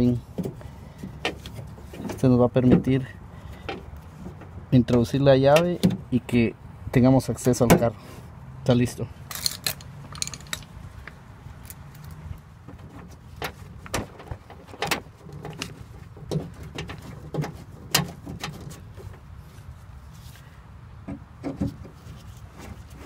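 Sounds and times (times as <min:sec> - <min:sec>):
hand tools clicking and knocking: 0:09.3 - 0:10.7.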